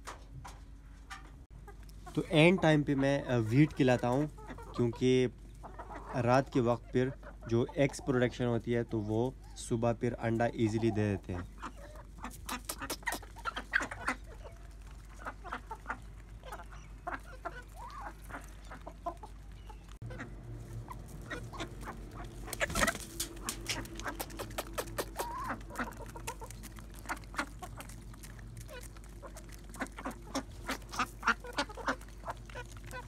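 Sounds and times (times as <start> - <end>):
chickens clucking: 0.0 - 33.0
pecking clicks: 23.2 - 31.0.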